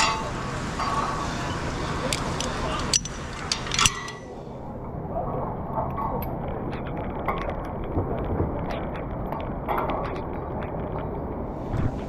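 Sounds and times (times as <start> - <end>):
steady low noise: 0.0 - 12.0
carabiner clinking on metal: 2.1 - 4.3.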